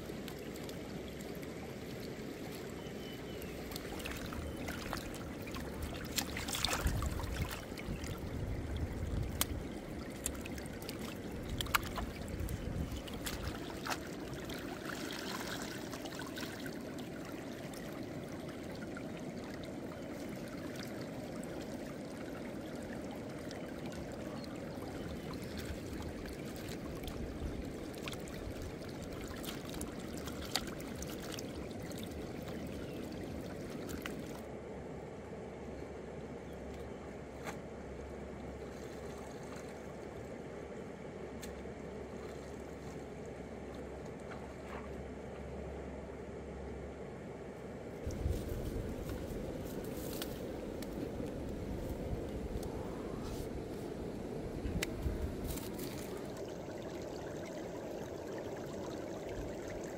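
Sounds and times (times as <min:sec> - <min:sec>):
splashing and sloshing water: 0:00.0 - 0:34.6, 0:37.3 - 0:45.6, 0:47.9 - 0:59.9
river running over stones: 0:48.0 - 0:59.9.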